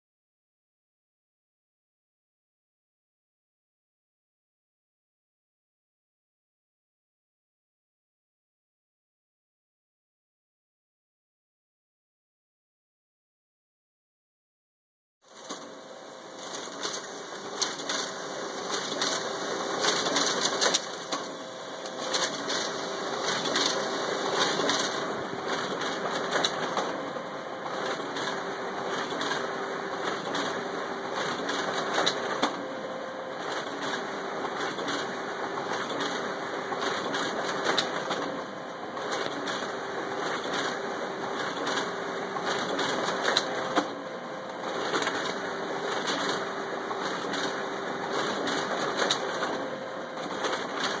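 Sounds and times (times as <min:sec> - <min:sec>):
copier motor hum: 0:15.3 - 0:51.0
rapid paper-handling clatter: 0:16.3 - 0:27.1, 0:27.7 - 0:32.6, 0:33.4 - 0:38.4, 0:39.0 - 0:51.0.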